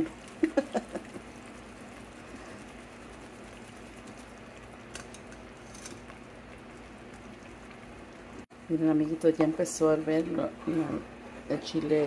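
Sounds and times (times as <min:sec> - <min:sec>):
pots simmering hiss: 0:00.0 - 0:12.0
spoon scraping wire strainer: 0:03.6 - 0:06.2.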